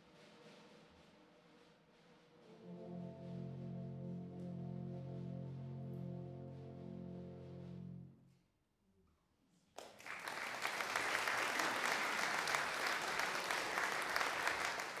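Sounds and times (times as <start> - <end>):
audience applause: 9.8 - 15.0.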